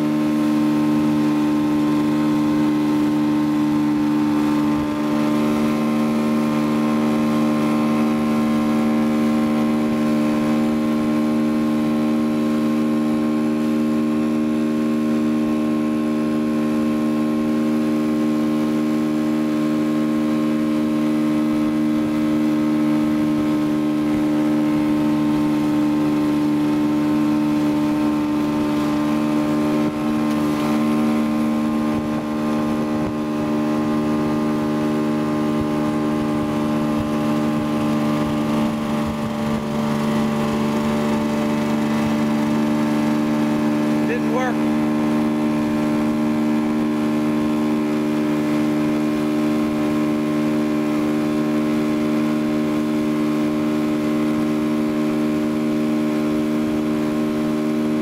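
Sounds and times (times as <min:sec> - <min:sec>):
motorboat engine running: 0:00.0 - 0:58.0
water rushing: 0:00.0 - 0:58.0.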